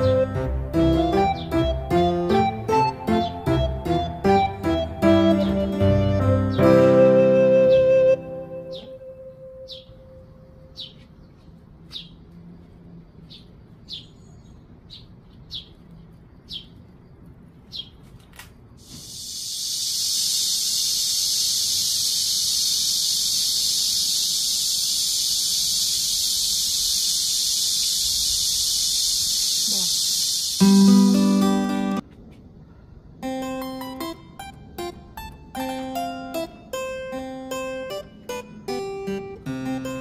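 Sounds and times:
bird chirping: 0.0s - 18.0s, 19.1s - 32.0s
high-pitched insect drone: 18.8s - 32.0s.

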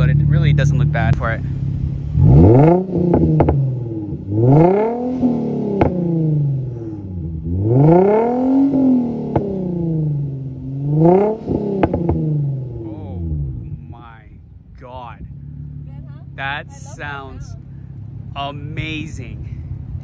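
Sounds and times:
exhaust pops: 0.0s - 14.0s
car engine revving: 0.0s - 20.0s.

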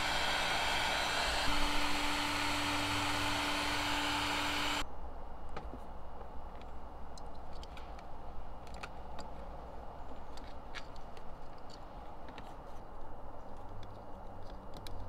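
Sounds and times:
small clicks and taps: 13.4s - 15.0s.

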